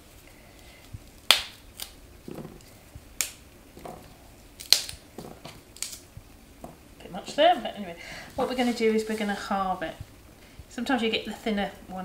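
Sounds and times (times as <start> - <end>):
asparagus snapping: 1.1 - 6.2.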